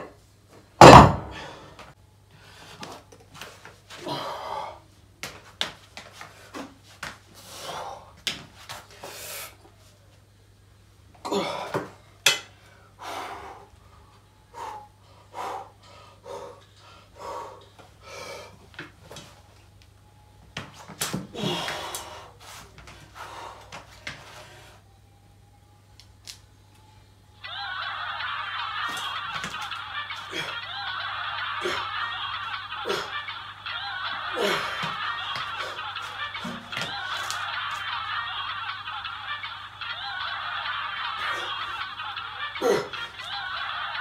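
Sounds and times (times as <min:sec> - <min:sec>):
dumbbells knocking: 0:00.8 - 0:01.5
person breathing hard: 0:12.6 - 0:18.7, 0:21.3 - 0:24.9.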